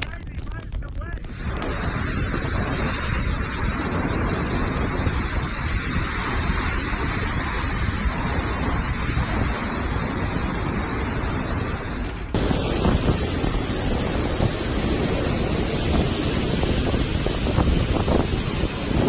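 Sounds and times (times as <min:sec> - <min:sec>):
driving rain: 0:00.0 - 0:08.8
howling wind: 0:00.0 - 0:19.0
wind buffeting microphone: 0:00.0 - 0:19.0.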